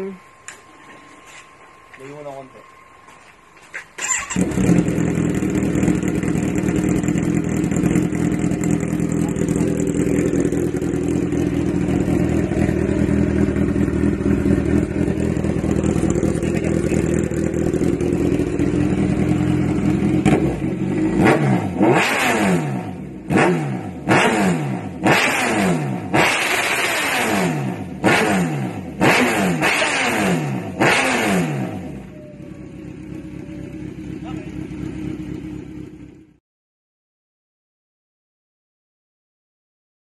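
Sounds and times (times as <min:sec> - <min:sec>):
motorcycle engine idling and revving: 0:00.0 - 0:36.4.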